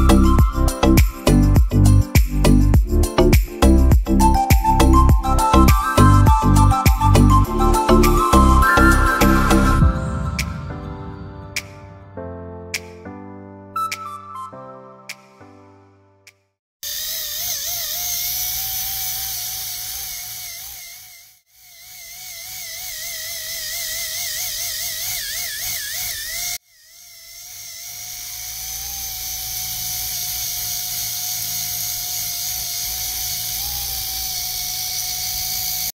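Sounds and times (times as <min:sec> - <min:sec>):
small motors whining: 0:00.0 - 0:09.9, 0:16.8 - 0:36.0.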